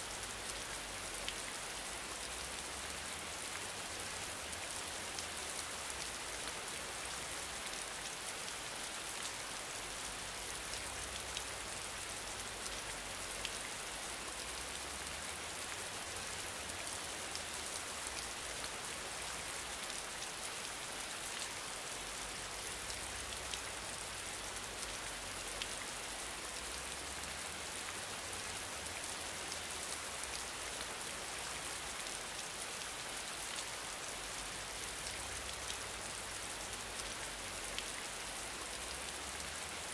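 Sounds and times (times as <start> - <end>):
rain-like hiss: 0.0 - 39.9
faint light ticks: 37.0 - 38.0.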